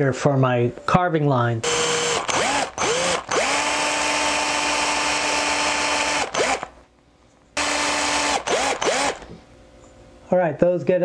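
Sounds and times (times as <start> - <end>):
cordless drill whine: 1.6 - 6.8, 7.6 - 9.4.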